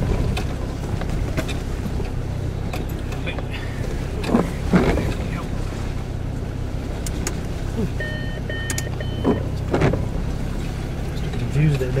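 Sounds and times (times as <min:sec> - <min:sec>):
car engine running at low revs: 0:00.0 - 0:12.0
short electronic beeps: 0:07.9 - 0:09.5.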